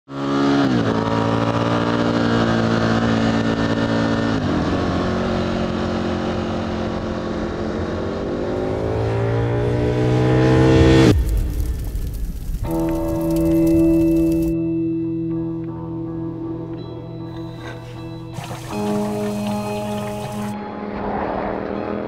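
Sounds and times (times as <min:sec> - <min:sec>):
motorcycle engine revving: 0:00.1 - 0:11.2, 0:17.4 - 0:20.6.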